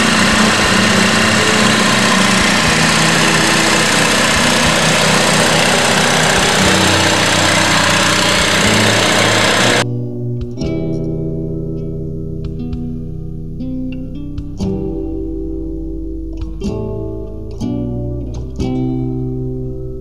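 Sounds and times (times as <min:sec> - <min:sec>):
generator running: 0:00.0 - 0:09.8.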